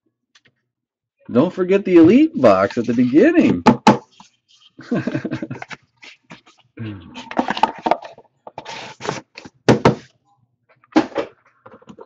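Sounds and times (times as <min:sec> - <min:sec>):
mumbled vocal sounds: 0:06.8 - 0:07.5
metal box scraping and tapping: 0:07.2 - 0:09.8.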